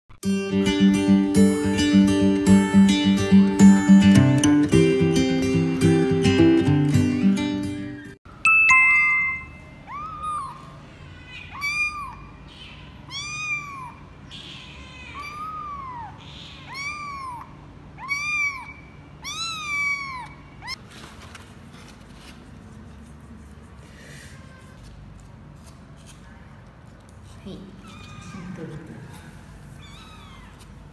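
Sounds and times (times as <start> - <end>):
kitten meowing: 9.9 - 20.8, 27.8 - 28.6, 29.8 - 30.7.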